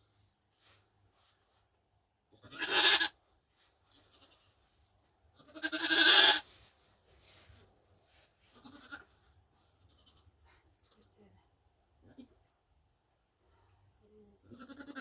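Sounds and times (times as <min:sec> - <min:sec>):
goat bleating: 0:02.3 - 0:03.2, 0:03.9 - 0:04.6, 0:05.4 - 0:06.4, 0:08.5 - 0:09.1, 0:14.5 - 0:15.0.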